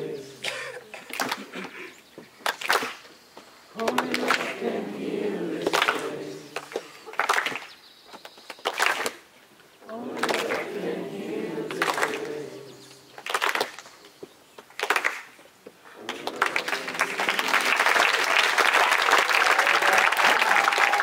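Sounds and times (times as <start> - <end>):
voices: 0.0 - 2.0, 3.7 - 7.4, 9.8 - 13.4, 15.8 - 21.0
crowd applauding: 3.8 - 4.7, 5.6 - 7.7, 10.0 - 10.8, 11.7 - 12.3, 13.2 - 13.8, 14.8 - 15.3, 15.9 - 21.0
person whooping: 19.4 - 21.0.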